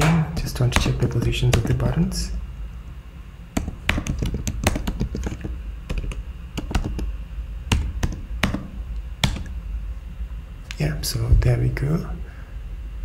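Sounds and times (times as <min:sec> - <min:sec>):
typing on a computer keyboard: 0:03.6 - 0:07.1, 0:07.7 - 0:09.6.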